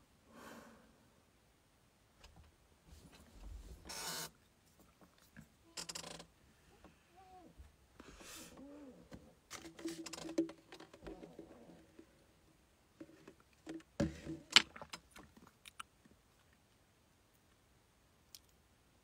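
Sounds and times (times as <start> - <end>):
plastic cup clicks and rattles: 9.5 - 11.4.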